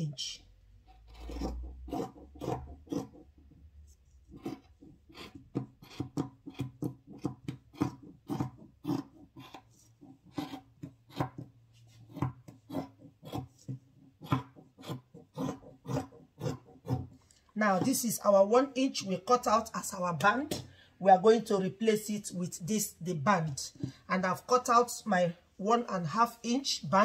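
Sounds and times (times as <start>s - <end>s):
scissors cutting fabric: 0.9s - 3.3s, 4.3s - 11.5s, 12.1s - 17.1s.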